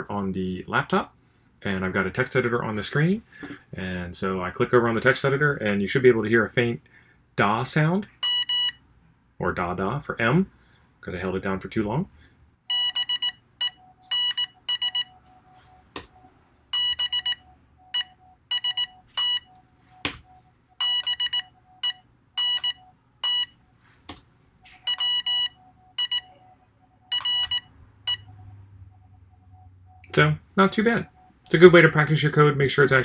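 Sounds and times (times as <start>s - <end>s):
buzzy morse code beeps: 8.2s - 8.8s, 12.7s - 23.7s, 24.6s - 31.5s.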